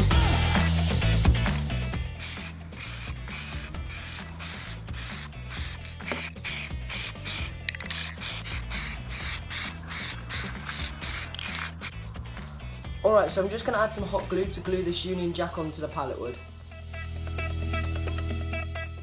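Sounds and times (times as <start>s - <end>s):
aerosol spray can hissing: 2.2s - 11.9s.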